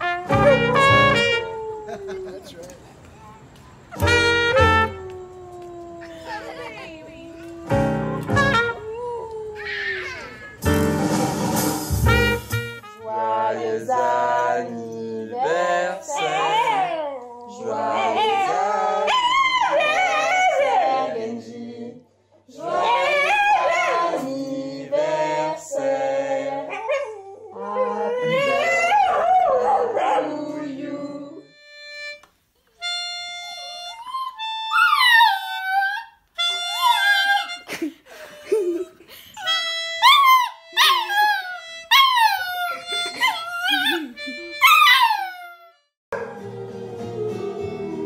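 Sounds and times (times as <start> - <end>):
melodica notes: 0.0 - 1.5, 4.0 - 5.0, 7.7 - 8.9, 10.5 - 13.2, 31.4 - 34.9, 36.3 - 37.9, 39.4 - 45.9
dog howling: 16.1 - 21.0, 22.8 - 24.0, 26.7 - 30.3, 33.6 - 37.6, 40.0 - 48.0
low steady musical tone: 31.1 - 33.9.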